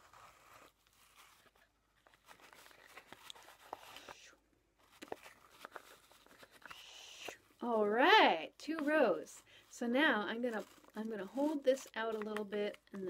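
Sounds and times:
yarn rustling and scraping: 0.0s - 13.0s.

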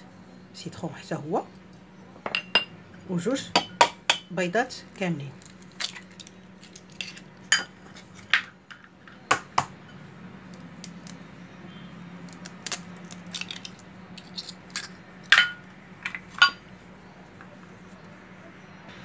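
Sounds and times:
egg cracking on bowl rim: 12.3s - 15.5s
shells clinking into glass dish: 13.3s - 15.6s, 16.4s - 16.6s.

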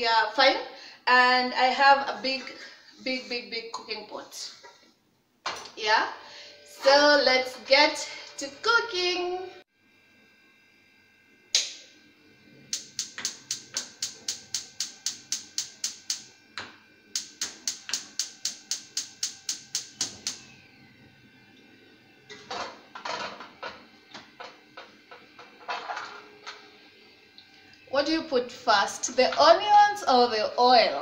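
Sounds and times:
stove spark igniter clicking: 11.5s - 11.8s, 12.7s - 20.5s
pot clattering and handling: 22.3s - 26.7s.

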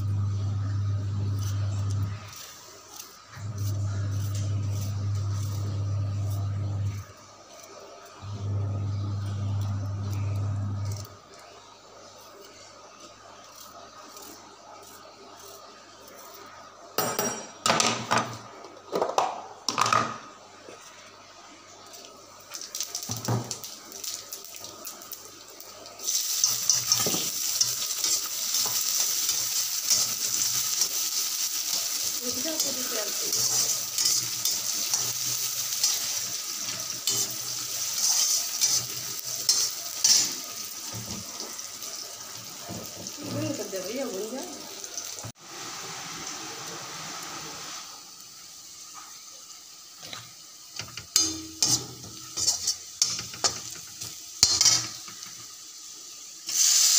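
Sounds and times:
onions sizzling in a pan: 0.0s - 56.9s
steel bowls and knife clattering: 26.4s - 30.9s, 31.7s - 40.5s, 51.1s - 53.8s, 54.4s - 55.1s
spatula scraping a pan: 26.4s - 41.2s, 51.2s - 53.8s, 54.4s - 55.0s.

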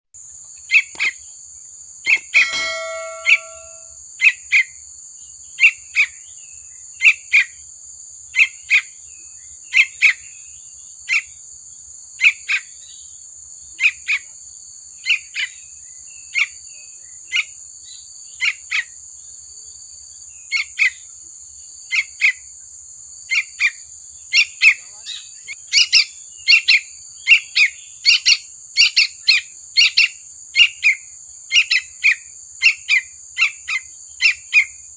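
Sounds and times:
brief ringing tone: 2.4s - 3.9s.

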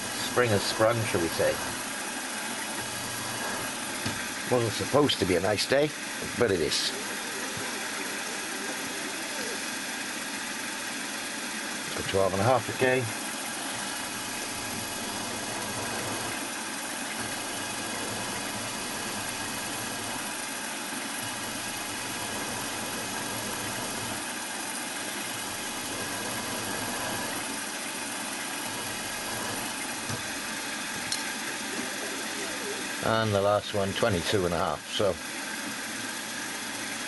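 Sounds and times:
milling machine motor running: 0.0s - 37.0s.

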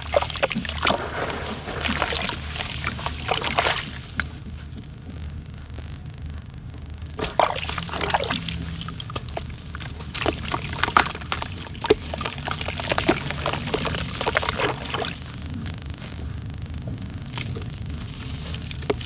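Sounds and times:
hands squelching wet paste: 0.0s - 4.4s, 7.2s - 15.4s, 17.3s - 19.0s
slurry drip: 0.0s - 4.4s, 7.2s - 15.4s, 17.3s - 19.0s
low steady hum: 0.0s - 19.0s.

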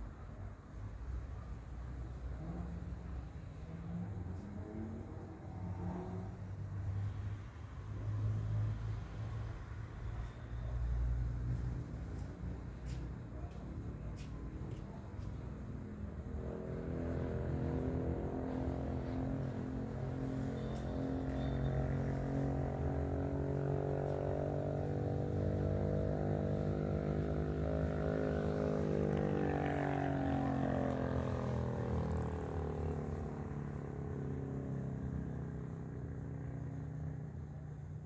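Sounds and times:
vehicle engine passing by: 2.1s - 38.0s.

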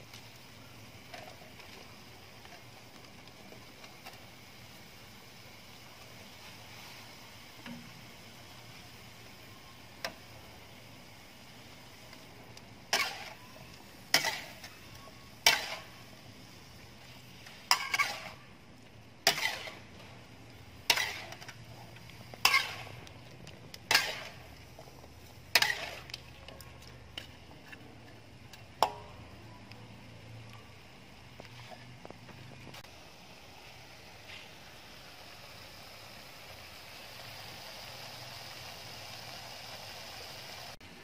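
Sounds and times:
faint steady hiss: 0.0s - 41.0s
metal ladle scraping wok: 12.8s - 18.6s, 19.2s - 29.0s, 31.4s - 32.6s.

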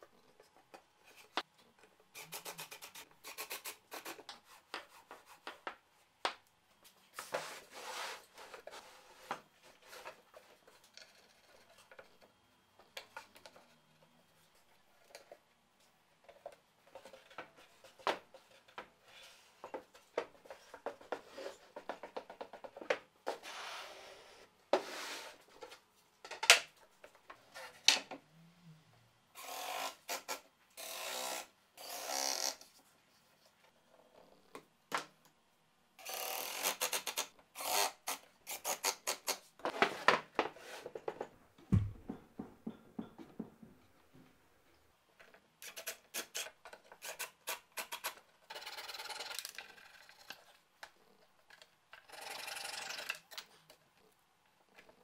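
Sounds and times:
wood knocking on wood: 41.7s - 43.8s.

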